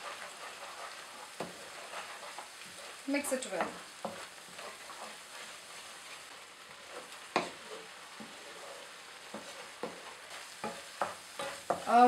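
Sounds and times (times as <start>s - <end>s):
paste sizzling in a frying pan: 0.0s - 12.0s
wooden spoon scraping a pan: 0.0s - 12.0s
spoon knocking on pan: 7.3s - 7.6s, 9.2s - 12.0s.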